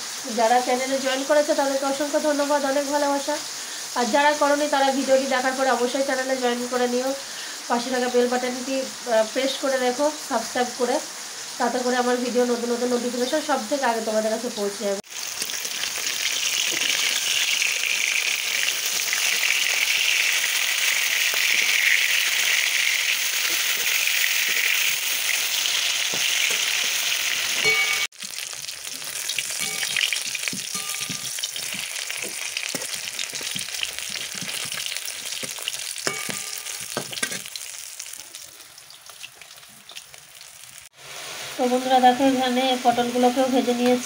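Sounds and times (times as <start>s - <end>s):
fish sizzling in hot oil: 0.0s - 44.0s
metal spatula scraping pan: 29.4s - 37.5s.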